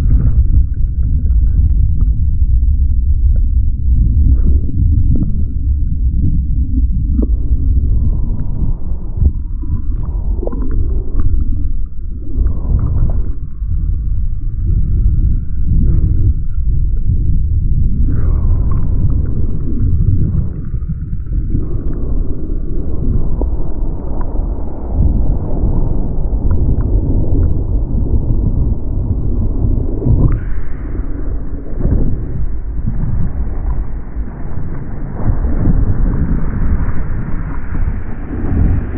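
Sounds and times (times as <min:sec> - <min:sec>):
wind against microphone: 0:00.0 - 0:38.9
water splashes: 0:17.8 - 0:38.9.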